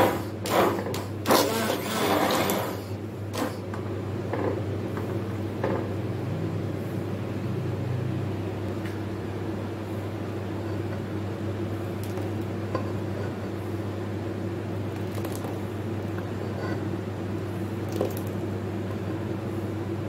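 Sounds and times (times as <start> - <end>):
immersion blender humming: 1.2 - 2.8.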